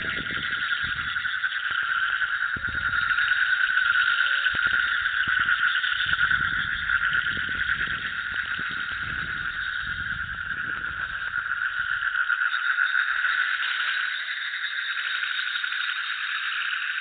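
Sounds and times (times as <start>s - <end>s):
low rumble: 0.0s - 12.3s
frogs trilling: 0.0s - 17.0s.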